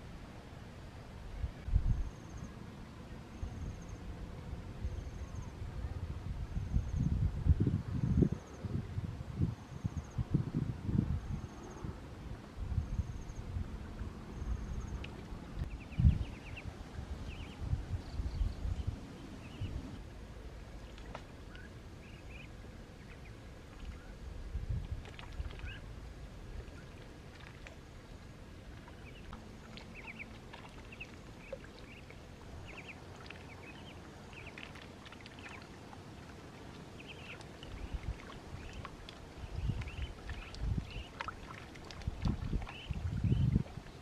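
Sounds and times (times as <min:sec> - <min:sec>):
ducks splashing and paddling: 0:13.6 - 0:18.0, 0:19.0 - 0:44.0.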